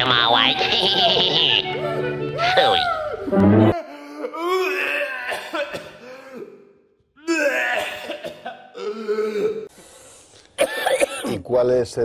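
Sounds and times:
cartoon voice cries: 0.0s - 1.7s, 2.4s - 3.2s.

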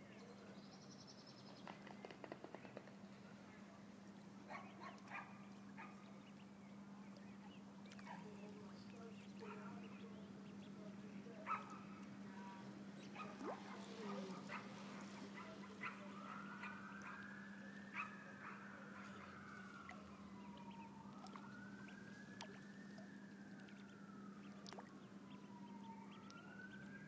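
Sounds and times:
faint siren: 3.2s - 27.0s
ducklings peeping: 4.7s - 6.5s, 7.1s - 12.2s, 13.0s - 22.6s, 23.6s - 26.6s.

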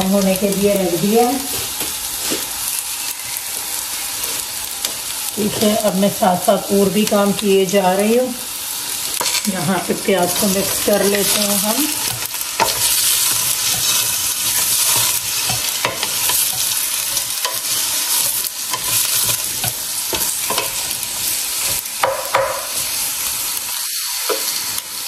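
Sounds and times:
onions sizzling in oil: 0.0s - 25.0s
wooden spatula scraping a pot: 9.2s - 21.0s.

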